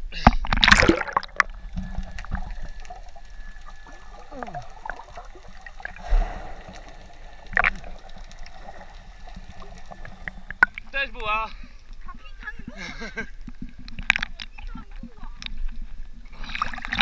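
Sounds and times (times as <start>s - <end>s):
water sloshing and gurgling: 0.0s - 17.0s
muffled splash and bubbles: 0.1s - 17.0s
muffled underwater sound: 1.6s - 12.8s.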